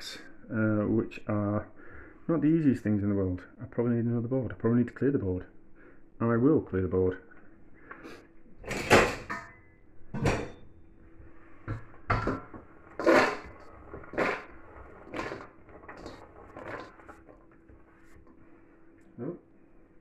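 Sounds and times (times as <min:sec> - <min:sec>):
vegetables scraped off wooden board: 0:13.0 - 0:17.0.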